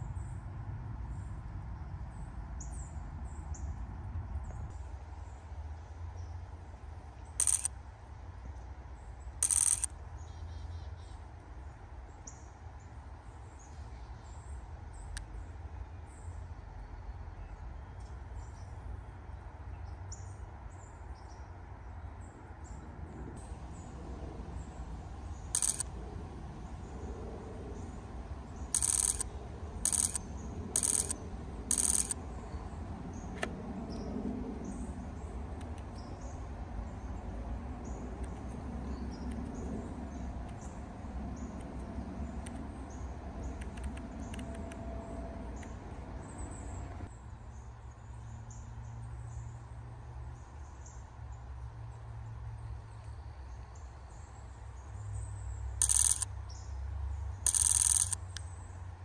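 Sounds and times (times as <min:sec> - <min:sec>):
faint high ticks: 0:07.4 - 0:07.7, 0:09.4 - 0:09.9, 0:25.5 - 0:25.9, 0:28.7 - 0:30.2, 0:30.8 - 0:32.2, 0:35.6 - 0:36.0, 0:41.6 - 0:44.9, 0:55.8 - 0:56.3, 0:57.5 - 0:58.5
camera shutter bursts: 0:07.4 - 0:07.8, 0:09.4 - 0:09.9, 0:25.6 - 0:25.9, 0:28.7 - 0:30.2, 0:30.8 - 0:32.2, 0:55.8 - 0:56.3, 0:57.5 - 0:58.3.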